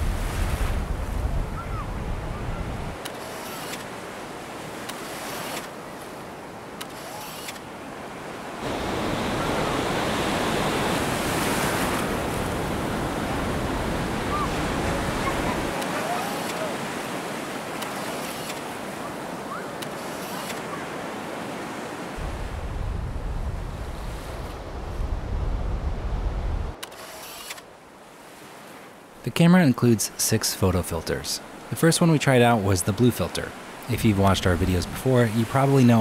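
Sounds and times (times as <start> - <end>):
wind rumbling on microphone: 0.0 - 3.0, 22.2 - 26.8
surf breaking on beach: 0.0 - 6.2, 8.3 - 27.1.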